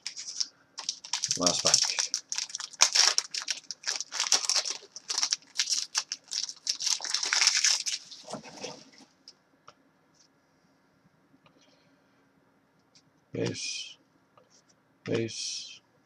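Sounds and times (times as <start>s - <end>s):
wrapper tearing and crinkling: 0.0s - 9.0s.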